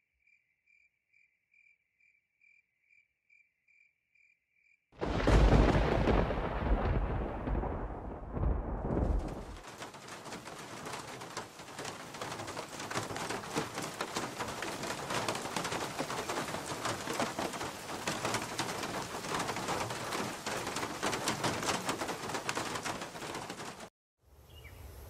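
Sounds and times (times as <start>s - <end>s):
heavy rain: 5.0s - 23.9s.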